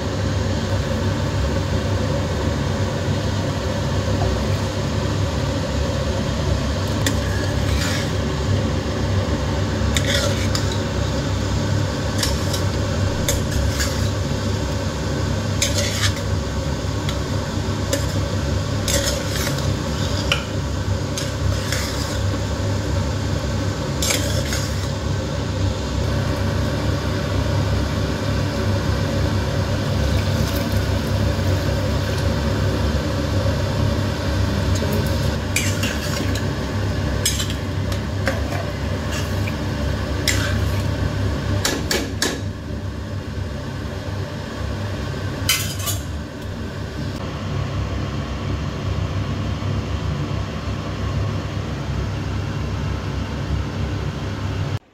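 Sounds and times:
steady low hum: 0.0 - 54.9
ladle scraping rice in pot: 7.0 - 8.4, 9.9 - 11.0, 12.1 - 14.3, 15.5 - 16.4, 17.9 - 22.5, 24.0 - 25.0, 34.7 - 36.6, 37.2 - 39.6, 40.2 - 41.0.

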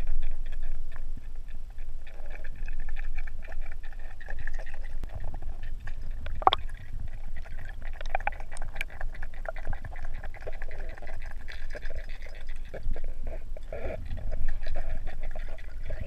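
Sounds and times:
small crackling bursts: 0.0 - 16.0
water sloshing and gurgling: 0.0 - 16.0
steady low rumble: 4.8 - 11.4.

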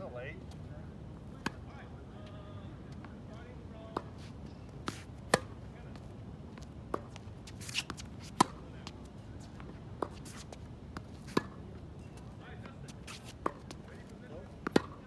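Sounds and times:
tennis ball bouncing: 1.4 - 1.6, 3.9 - 15.0
racket hitting tennis ball: 3.9 - 5.6, 6.9 - 8.7, 9.5 - 12.2, 12.9 - 13.9, 14.5 - 15.0
shoe scuff on court: 4.0 - 6.1, 6.9 - 15.0.

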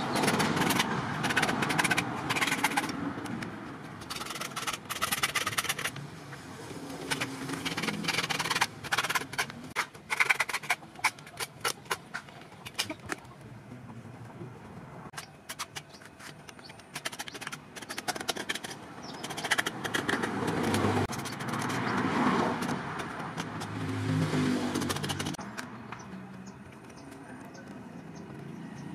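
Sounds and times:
hacksaw cutting plastic: 0.0 - 6.0, 6.9 - 13.2, 15.1 - 24.0, 24.6 - 25.6.

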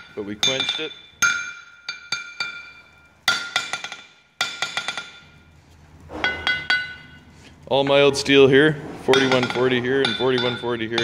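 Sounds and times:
hammer bouncing on steel anvil: 0.0 - 5.4, 6.2 - 7.2, 9.1 - 11.0
anvil ringing: 0.0 - 5.5, 6.2 - 7.3, 9.1 - 11.0.

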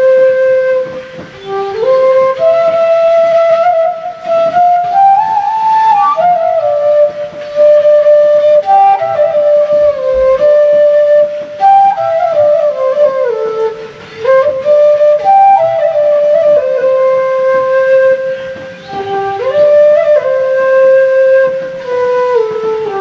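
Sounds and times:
bamboo flute melody: 0.0 - 23.0.

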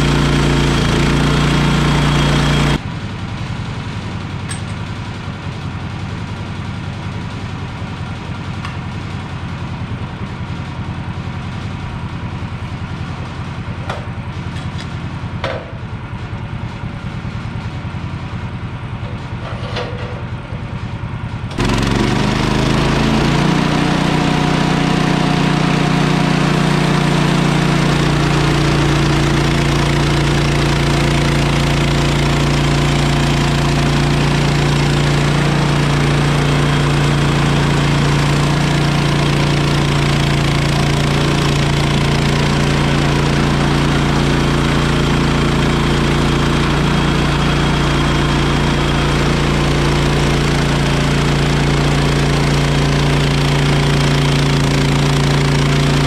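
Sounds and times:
sawmill engine running: 0.0 - 56.0.

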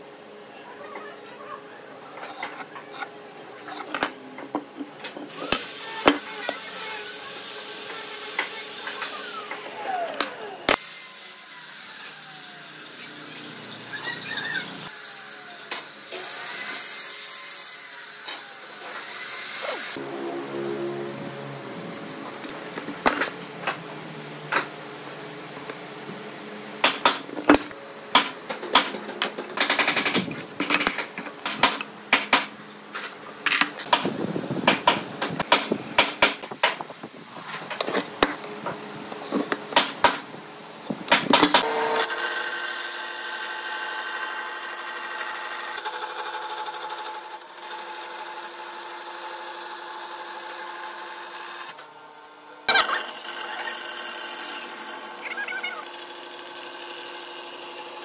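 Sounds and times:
tools clicking and knocking on wood: 3.7 - 5.3, 26.8 - 34.1
band saw cutting wood: 5.2 - 22.6, 41.6 - 51.8, 52.7 - 58.0.

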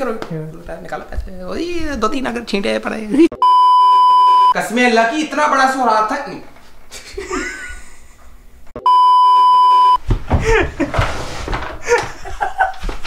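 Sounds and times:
censor beep: 3.3 - 4.6, 8.8 - 10.0.

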